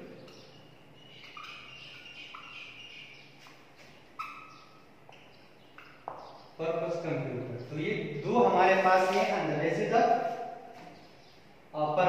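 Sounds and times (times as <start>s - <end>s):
marker squeaking on whiteboard: 0.3s - 6.5s.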